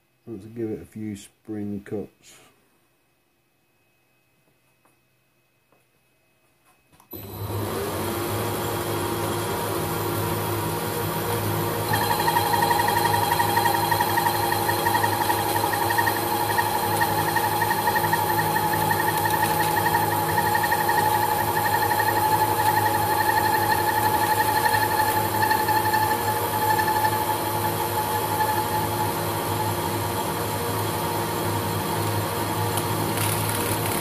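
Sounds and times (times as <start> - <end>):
lathe drive hum: 7.2 - 34.0
whining cutting tone: 8.7 - 31.2.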